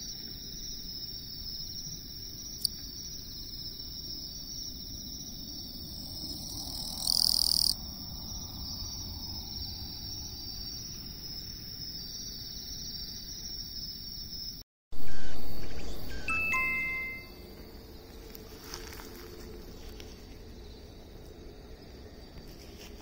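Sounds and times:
buzzy insect call: 0.0s - 23.0s
katydid stridulating: 0.0s - 23.0s
loud chime: 16.0s - 17.5s.

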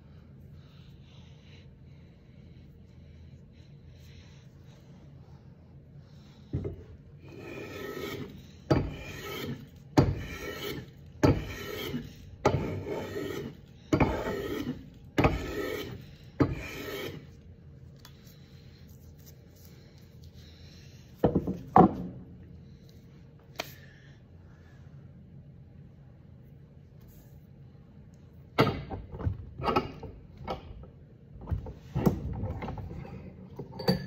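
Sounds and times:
hand plane shaving wood: 7.3s - 17.2s.

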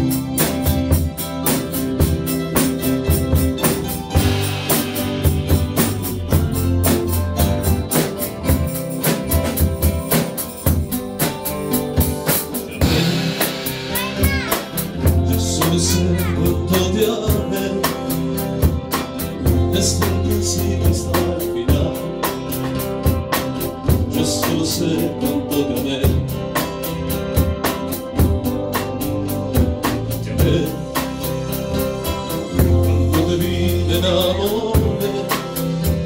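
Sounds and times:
deep bass notes: 0.0s - 36.0s
drum kit beat: 0.0s - 36.0s
person singing: 12.7s - 18.5s, 19.4s - 22.6s, 23.9s - 26.5s, 30.2s - 31.2s, 32.1s - 35.8s.

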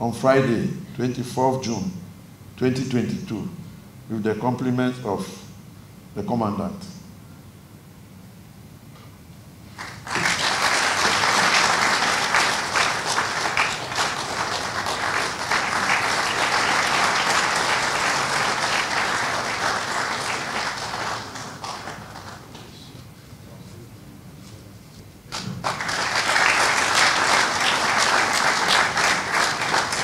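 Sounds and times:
audience applauding: 9.7s - 23.0s, 25.3s - 30.0s.

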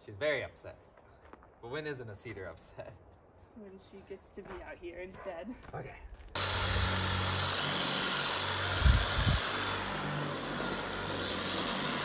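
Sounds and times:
small motor humming: 6.4s - 12.0s.

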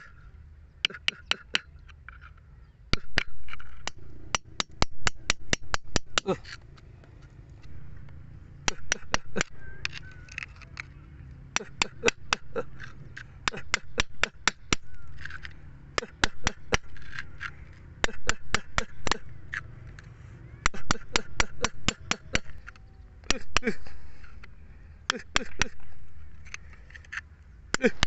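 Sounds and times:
chisel tapping on rock: 0.8s - 1.7s, 2.9s - 6.4s, 8.6s - 10.9s, 11.6s - 19.6s, 20.6s - 23.8s, 25.1s - 25.9s, 27.7s - 28.0s.

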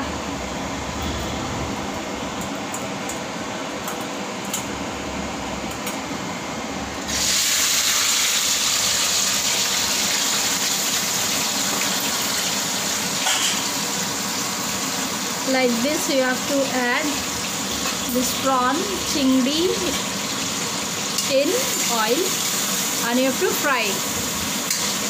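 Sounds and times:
prawns sizzling in hot oil: 7.0s - 25.0s.

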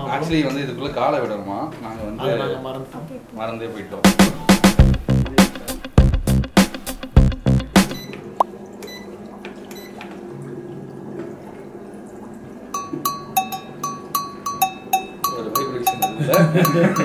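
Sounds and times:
music beat: 4.1s - 8.0s, 12.8s - 17.0s
foot spa motor hum: 8.0s - 17.0s
two-note ringing tap: 12.7s - 17.0s.

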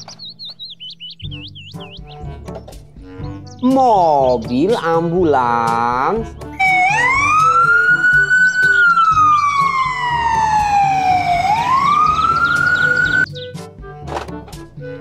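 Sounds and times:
light background music: 0.0s - 15.0s
ambulance siren wailing: 6.6s - 13.3s.

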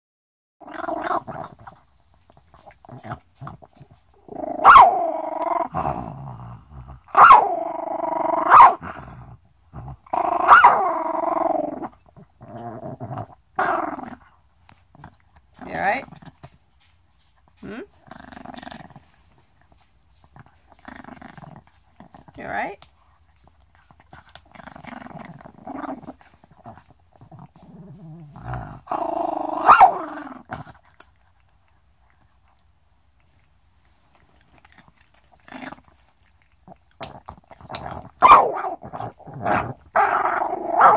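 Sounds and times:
small dog growling: 0.6s - 16.6s, 17.6s - 22.8s, 23.7s - 31.4s, 34.1s - 40.9s
dog snapping: 37.0s - 38.1s.

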